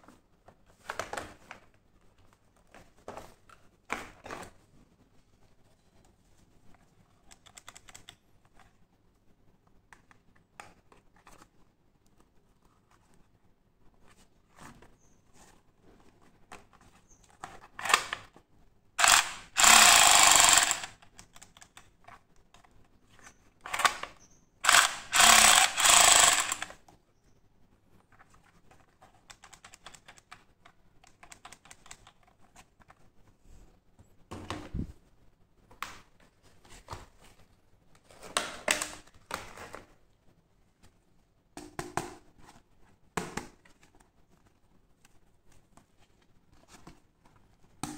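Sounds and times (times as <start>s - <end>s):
toy gun firing sound: 19.0s - 21.0s, 24.6s - 26.8s.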